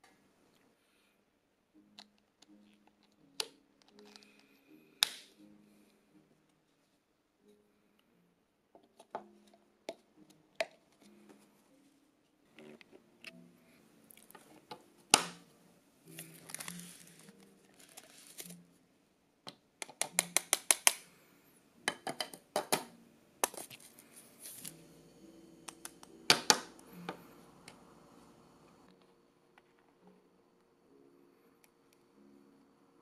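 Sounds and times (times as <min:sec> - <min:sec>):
plastic and metal parts clicking: 0:02.0 - 0:05.2.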